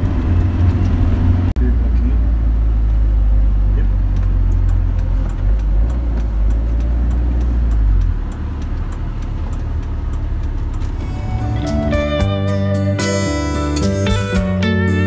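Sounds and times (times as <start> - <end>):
car engine and road noise: 0.0 - 15.0
faint regular ticking: 4.1 - 11.0.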